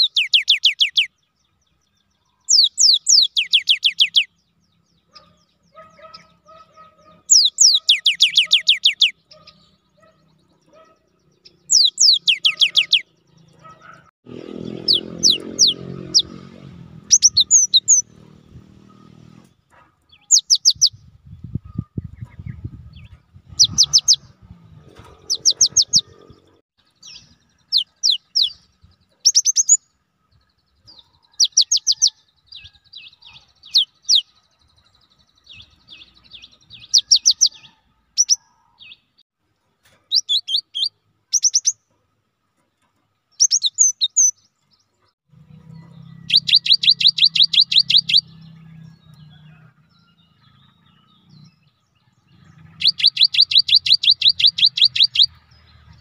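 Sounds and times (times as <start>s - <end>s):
bird singing whistled notes: 0.0s - 6.4s, 7.2s - 13.2s, 17.1s - 18.2s, 20.1s - 24.4s, 25.3s - 26.2s, 27.0s - 39.0s, 40.1s - 41.8s, 43.3s - 44.9s, 45.7s - 55.6s.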